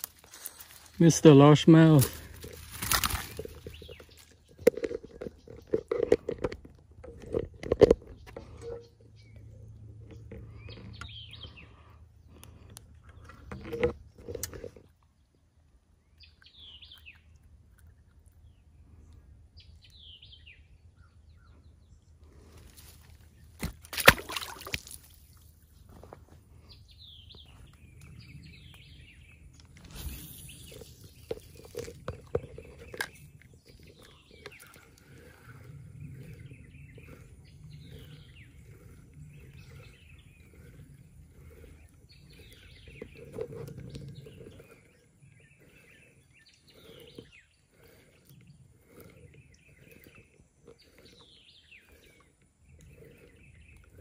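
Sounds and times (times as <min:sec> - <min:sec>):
rustling and handling noises: 0:00.0 - 0:01.1, 0:02.0 - 0:08.7
birds chirping: 0:00.0 - 0:54.0.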